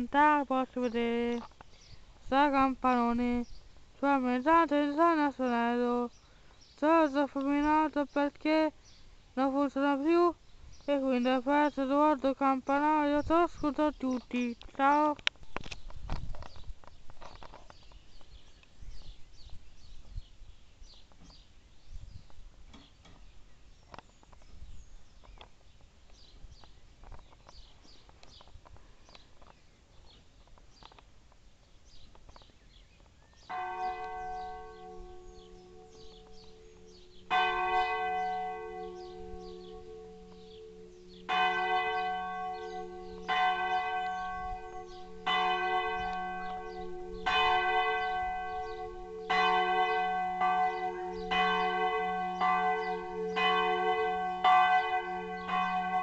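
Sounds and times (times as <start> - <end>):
large church bell ringing: 33.5 - 56.0.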